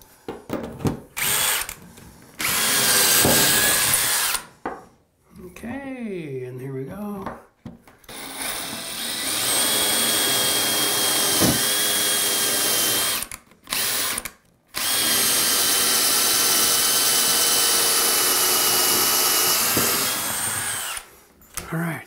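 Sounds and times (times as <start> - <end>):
drill whining through tile: 1.2 - 1.8, 2.4 - 4.5, 8.1 - 21.3.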